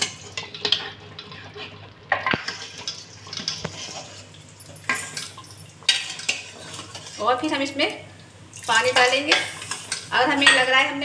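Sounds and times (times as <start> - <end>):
ladle sloshing thick gravy: 5.9 - 7.4.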